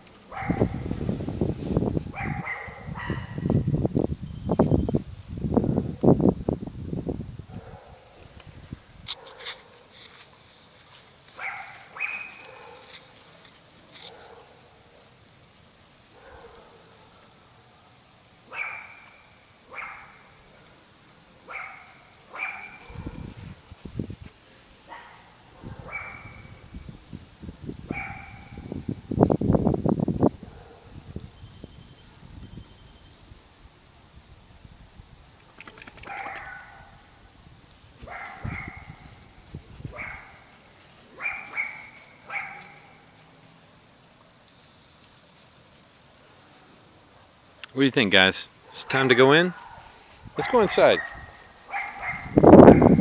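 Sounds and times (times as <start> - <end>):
puppies barking: 0.3 - 0.9, 2.1 - 3.5, 11.4 - 13.1, 16.2 - 17.2, 18.5 - 20.4, 21.4 - 23.3, 24.9 - 26.6, 27.9 - 28.7, 36.0 - 37.0, 38.0 - 39.1, 39.9 - 43.1, 48.7 - 53.0.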